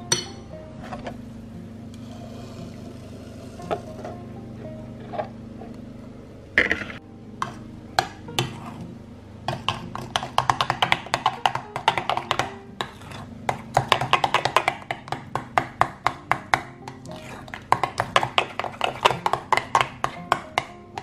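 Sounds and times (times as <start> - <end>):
whisk knocks: 9.5 - 12.6, 13.5 - 17.0, 17.6 - 21.0
whisk clicking against glass bowl: 9.6 - 12.6, 13.5 - 21.0.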